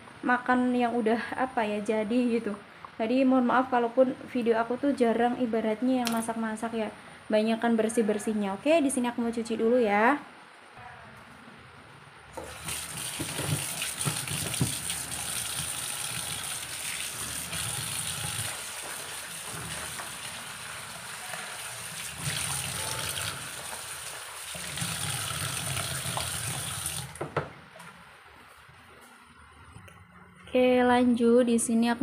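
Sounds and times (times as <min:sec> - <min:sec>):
tap water running into bowl: 0:12.4 - 0:27.5.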